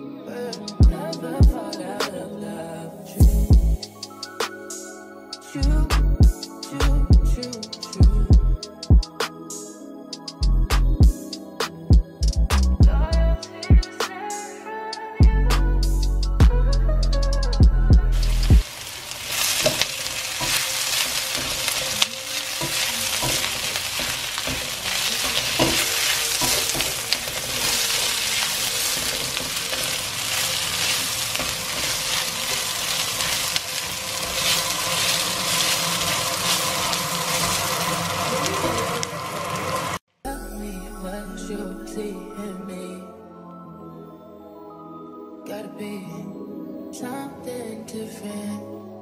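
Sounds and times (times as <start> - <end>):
background music: 0.0 - 49.0
vegetables sizzling in a wok: 18.2 - 40.0
spatula knocking and scraping pan: 21.3 - 27.9.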